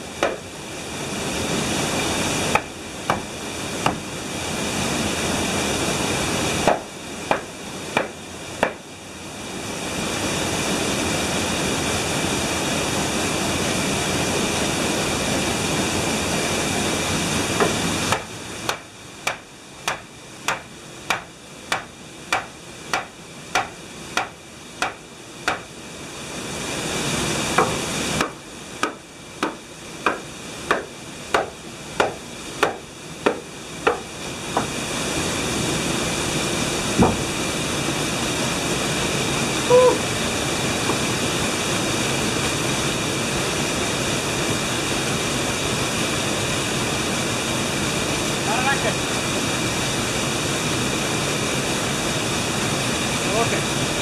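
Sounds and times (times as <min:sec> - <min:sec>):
steady rushing noise: 0:00.0 - 0:54.0
axe chopping wood: 0:00.2 - 0:00.5, 0:02.5 - 0:04.0, 0:06.6 - 0:08.8, 0:17.6 - 0:25.7, 0:27.6 - 0:34.0.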